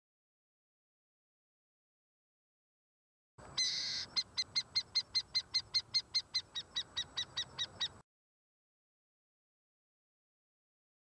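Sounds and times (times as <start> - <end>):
eagle calling: 3.4 - 8.0.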